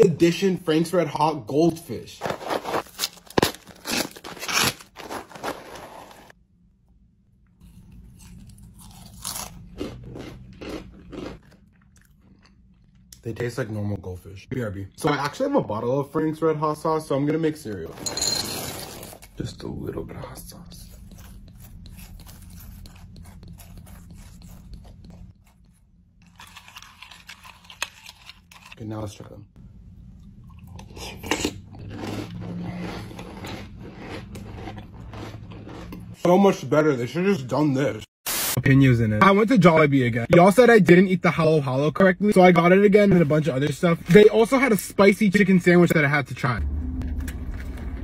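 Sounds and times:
plastic snack bag tearing and rustling: 2.2s - 6.3s, 26.3s - 28.8s
crackers chewed with crisp crunch: 7.6s - 13.2s, 21.0s - 28.8s, 30.3s - 36.1s
low hum: 29.4s - 36.2s, 46.1s - 48.0s.

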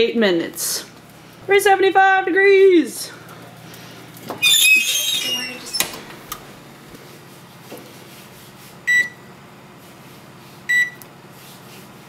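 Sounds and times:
short high oven keypad beeps: 8.9s - 9.3s, 10.7s - 11.0s.

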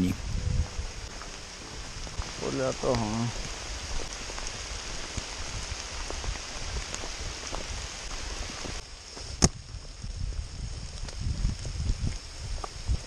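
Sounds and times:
footsteps on leafy trail: 0.0s - 13.0s
rain pattering on ponchos: 0.0s - 13.0s.

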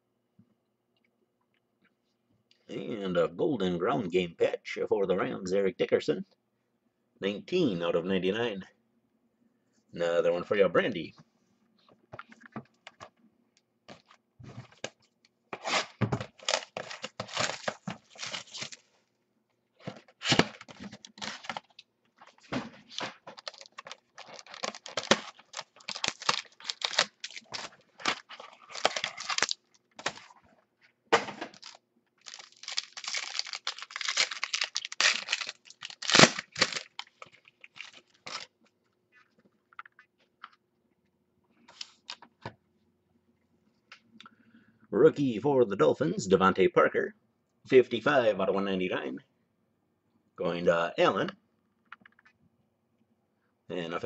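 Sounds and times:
foil wrapper tearing and crinkling: 15.6s - 18.9s, 22.9s - 30.3s, 31.5s - 38.5s.

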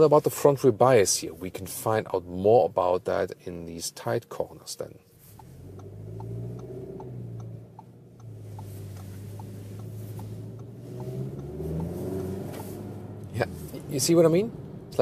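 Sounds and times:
car engine from inside cabin: 5.0s - 15.0s
light regular ticking: 5.3s - 13.4s.

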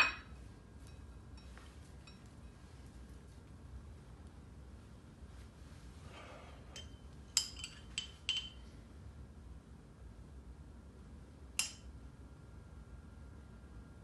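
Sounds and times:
metal spoon clinking on bowls: 0.0s - 2.6s, 6.7s - 8.7s.

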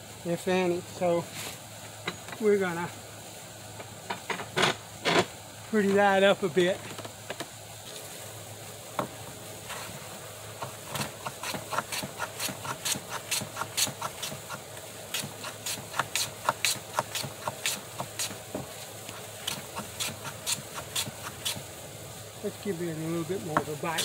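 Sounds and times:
hand plane swishing on wood: 10.8s - 18.4s, 19.5s - 21.6s.

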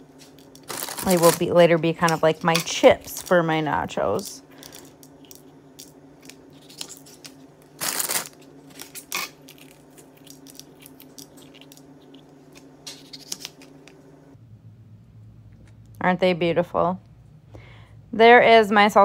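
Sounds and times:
faint low hum: 0.0s - 19.0s
crisp crunch cutting pepper: 5.2s - 13.8s.

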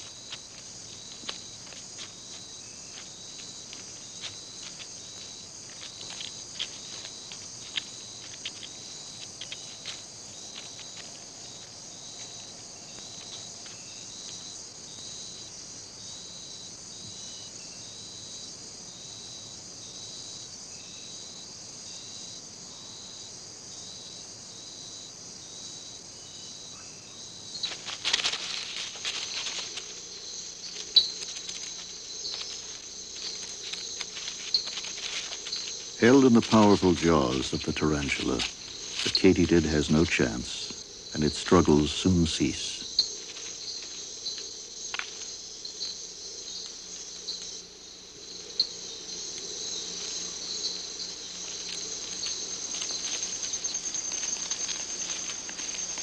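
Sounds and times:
loud scuffle and rustle: 0.0s - 15.1s, 27.3s - 45.4s, 49.2s - 56.0s
insects trilling: 0.0s - 56.0s.

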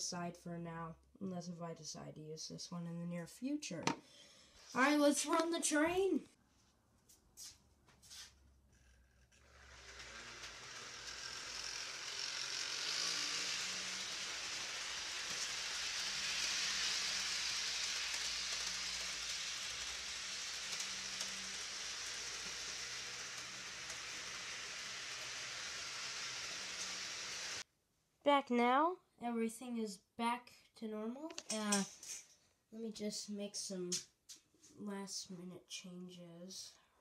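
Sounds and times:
model train wheels hissing on rails: 7.4s - 8.3s, 9.3s - 27.6s
faint motor hum: 9.1s - 27.6s.

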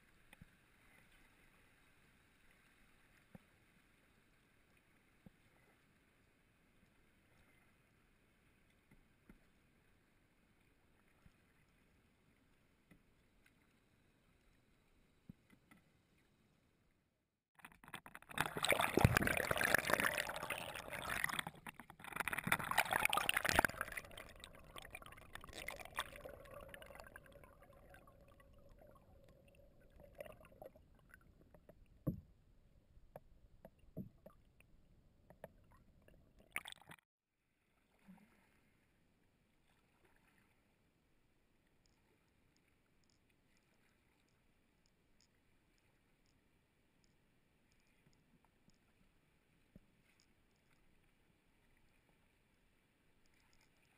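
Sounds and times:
water rushing against camera: 17.6s - 32.2s.

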